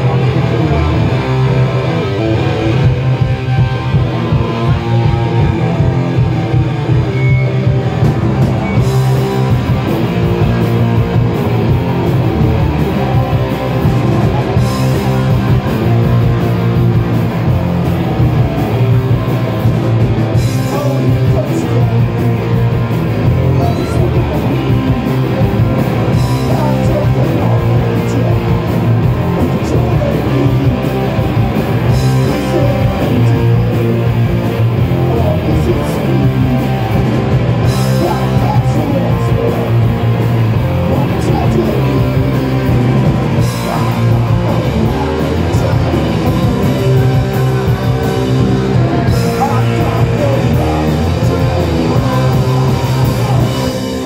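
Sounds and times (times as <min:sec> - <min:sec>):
distorted electric guitar: 0:00.0 - 0:54.0
drum kit: 0:00.0 - 0:54.0
person singing: 0:20.4 - 0:40.2, 0:40.8 - 0:54.0.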